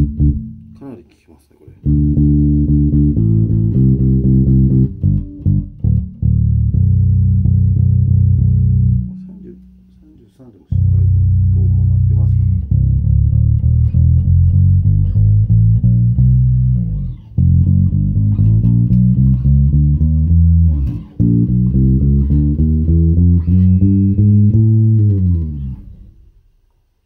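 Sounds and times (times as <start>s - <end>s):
plucked electric bass notes: 0.0s - 1.0s, 1.8s - 26.6s.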